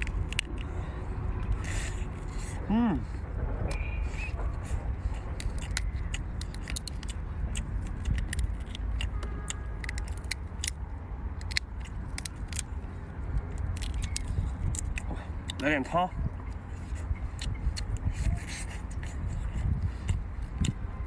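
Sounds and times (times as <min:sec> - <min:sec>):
steady low rumble: 0:00.0 - 0:21.0
prawn shell cracking: 0:05.4 - 0:15.6.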